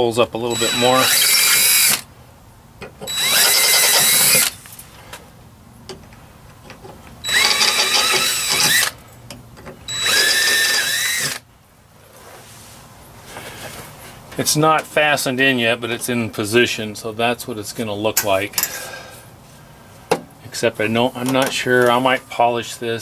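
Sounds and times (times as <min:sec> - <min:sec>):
cordless drill drilling metal: 0:00.5 - 0:02.1, 0:03.1 - 0:04.6, 0:07.2 - 0:09.0, 0:09.9 - 0:11.4.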